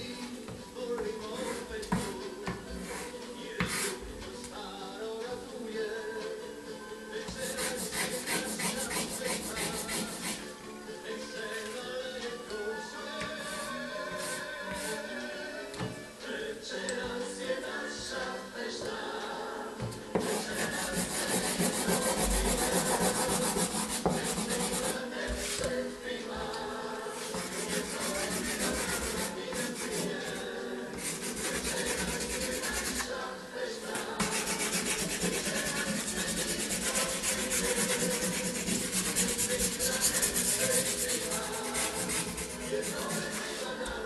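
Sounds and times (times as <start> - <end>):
pastel scratching on paper: 7.4 - 10.5, 20.2 - 25.7, 27.2 - 33.1, 33.9 - 43.7.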